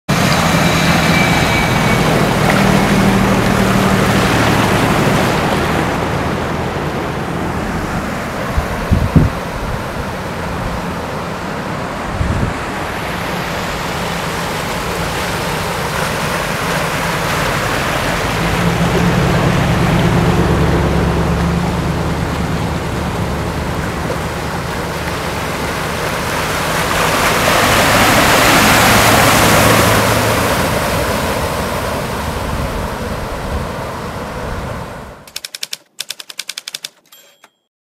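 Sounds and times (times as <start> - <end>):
floodwater rushing: 0.1 - 35.3
vehicles driving through water: 0.1 - 35.3
wind on microphone: 7.7 - 11.0, 12.0 - 13.1.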